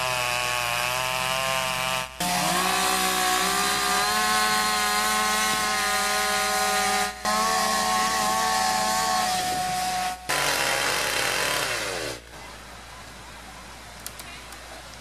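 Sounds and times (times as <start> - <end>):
chainsaws cutting logs: 0.0 - 12.3.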